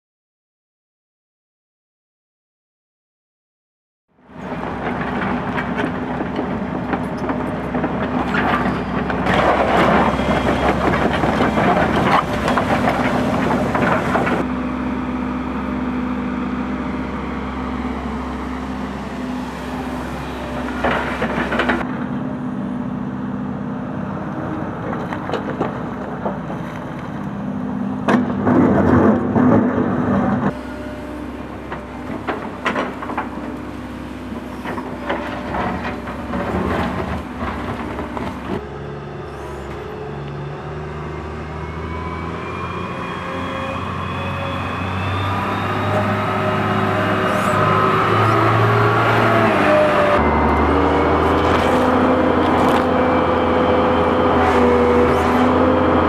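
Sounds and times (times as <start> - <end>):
excavator diesel engine running: 4.2 - 56.0
bucket scraping and crunching soil: 8.2 - 14.5, 49.6 - 56.0.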